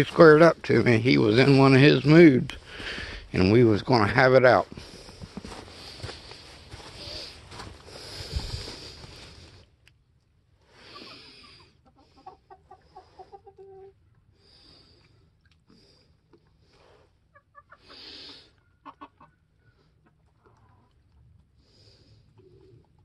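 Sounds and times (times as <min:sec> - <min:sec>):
hens clucking: 0:10.8 - 0:14.2, 0:17.2 - 0:21.4.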